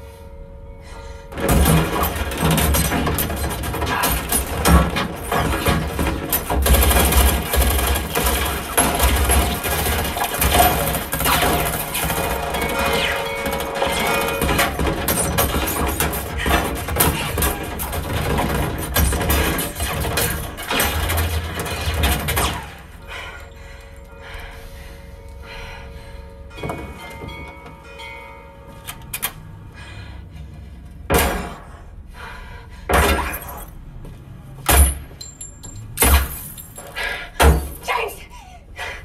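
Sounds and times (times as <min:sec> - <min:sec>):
heavy impacts: 0:01.2 - 0:24.2
bullets cracking against glass: 0:01.5 - 0:22.8, 0:34.7 - 0:37.9.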